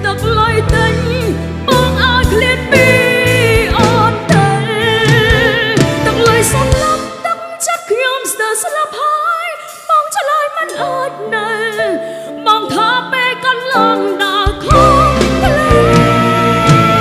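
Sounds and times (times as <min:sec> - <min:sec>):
pop instrumental backing: 0:00.0 - 0:17.0
woman singing with vibrato: 0:00.0 - 0:17.0.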